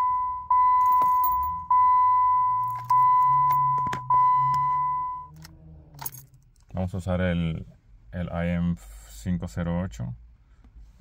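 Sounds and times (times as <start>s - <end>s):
dashboard warning chime: 0.0s - 5.4s
keys jingling: 0.8s - 1.6s, 2.6s - 3.7s, 6.0s - 6.4s.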